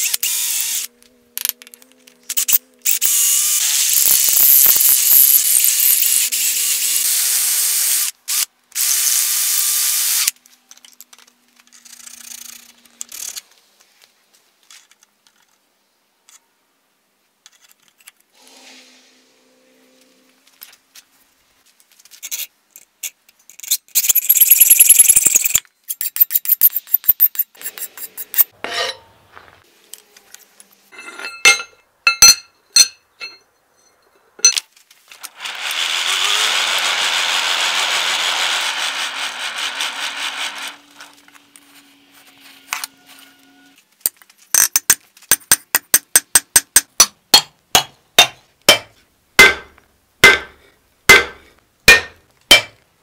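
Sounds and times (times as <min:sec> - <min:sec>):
hammer striking steel on anvil: 0:31.0 - 0:33.4, 0:45.5 - 0:52.8
hacksaw rasping through steel: 0:47.8 - 0:52.8.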